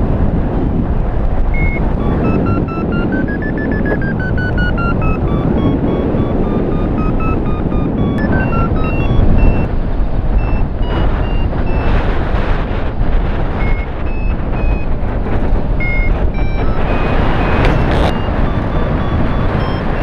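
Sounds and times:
wind rushing on microphone: 0:00.0 - 0:20.0
variometer short beeps: 0:01.5 - 0:09.7, 0:10.3 - 0:12.0, 0:13.5 - 0:15.0, 0:15.7 - 0:20.0.

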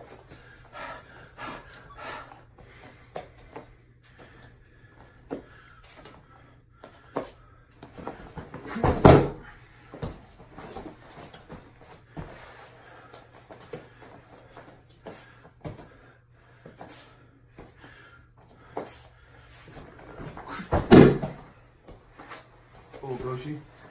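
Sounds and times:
bare feet shuffling on mat: 0:06.8 - 0:16.0, 0:18.4 - 0:23.9
body thumping onto mat: 0:08.0 - 0:09.4, 0:20.2 - 0:21.5.

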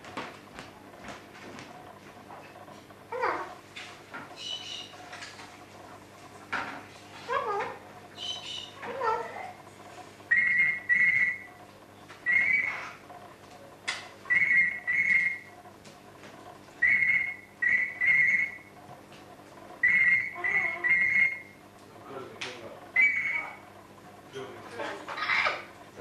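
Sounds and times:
parrot mimicking ringing telephone: 0:07.3 - 0:09.6, 0:10.3 - 0:11.5, 0:12.2 - 0:13.0, 0:14.3 - 0:15.5, 0:16.8 - 0:18.7, 0:19.8 - 0:21.6, 0:23.0 - 0:23.6.

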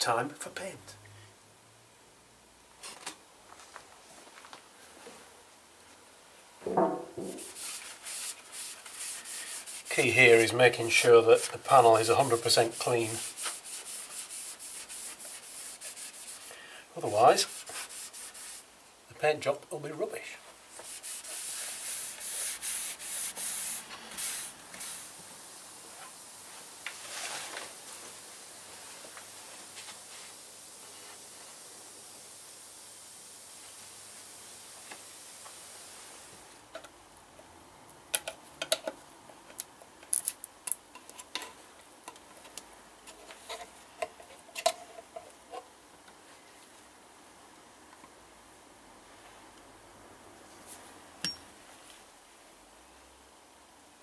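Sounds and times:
faint steady hiss: 0:00.0 - 0:54.0
cloth wiping plastic panel: 0:07.2 - 0:18.7, 0:20.7 - 0:25.1.

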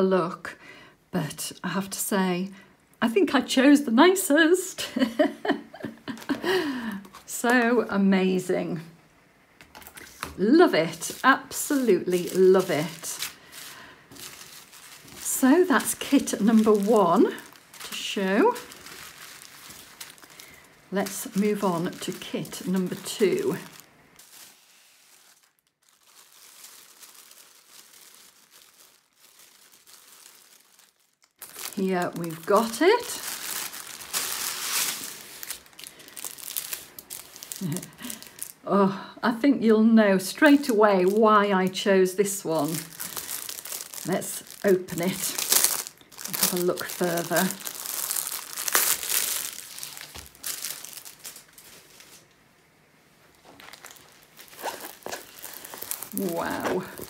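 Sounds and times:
plastic bag crinkling: 0:05.8 - 0:07.8, 0:09.6 - 0:38.7, 0:40.2 - 0:52.4, 0:53.3 - 0:57.0
soft rustle: 0:09.8 - 0:38.6, 0:40.3 - 0:52.4, 0:53.2 - 0:57.0.

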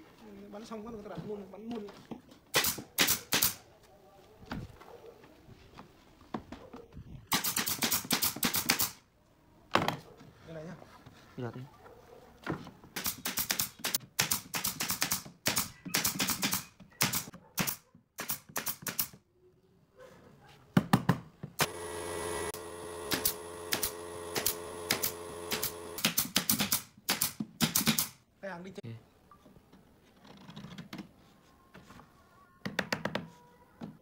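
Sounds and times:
nail gun firing: 0:02.5 - 0:03.6, 0:07.3 - 0:09.0, 0:13.0 - 0:19.2, 0:21.6 - 0:28.2
steady hum: 0:21.6 - 0:26.0.

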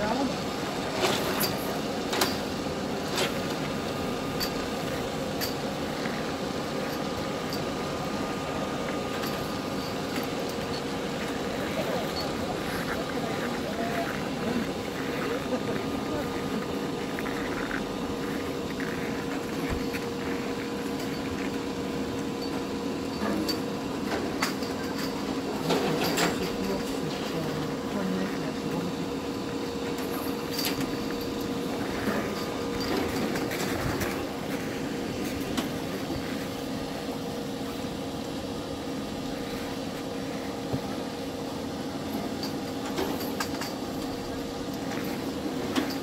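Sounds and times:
motor running drone: 0:00.0 - 0:46.0
faint voices: 0:07.8 - 0:21.5, 0:23.1 - 0:37.8.

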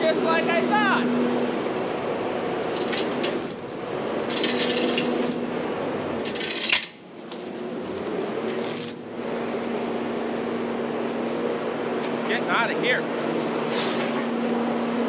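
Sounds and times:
metal chain jingling and clinking: 0:02.2 - 0:05.6, 0:06.2 - 0:09.2.

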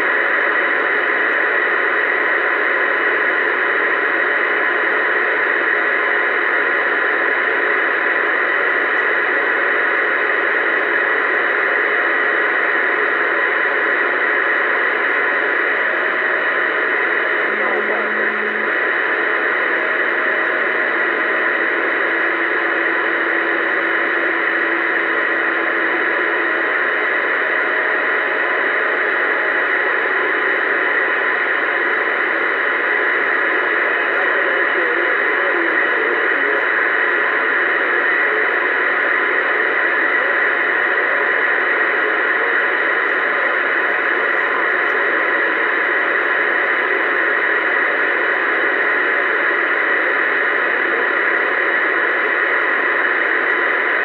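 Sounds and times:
radio static hiss: 0:00.0 - 0:54.0.

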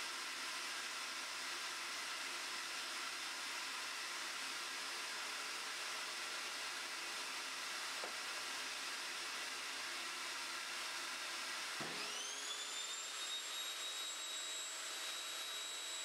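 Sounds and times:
dust extractor running: 0:00.0 - 0:16.0
table saw motor whine: 0:00.0 - 0:16.0.

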